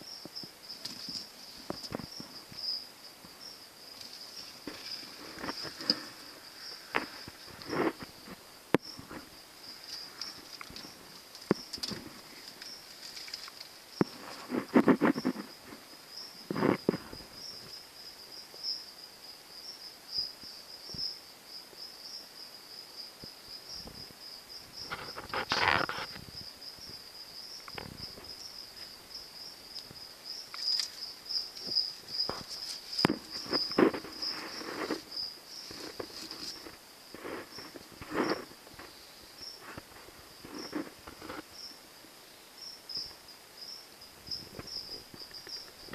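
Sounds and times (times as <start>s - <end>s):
insect chirping: 0.0s - 45.9s
rustles and knocks: 0.3s - 17.7s, 24.7s - 27.0s, 29.8s - 41.6s.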